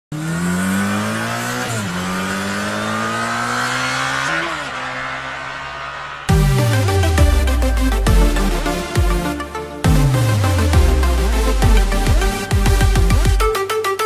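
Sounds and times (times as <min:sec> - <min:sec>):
motorcycle engine accelerating: 0:00.1 - 0:09.2
music with heavy bass beat: 0:06.3 - 0:14.0.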